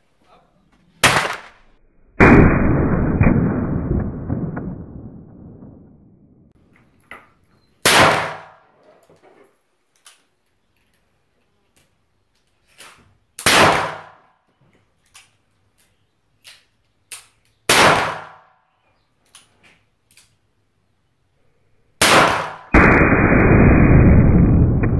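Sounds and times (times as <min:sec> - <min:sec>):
revolver gunshots: 0:01.0 - 0:06.6, 0:07.8 - 0:08.6, 0:13.4 - 0:14.2, 0:17.7 - 0:18.5, 0:22.0 - 0:24.9.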